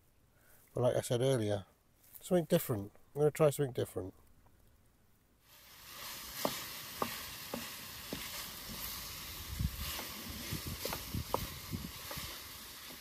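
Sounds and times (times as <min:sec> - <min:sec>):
food sizzling in frying pan: 0:05.4 - 0:13.0
spatula scraping pan: 0:05.8 - 0:13.0.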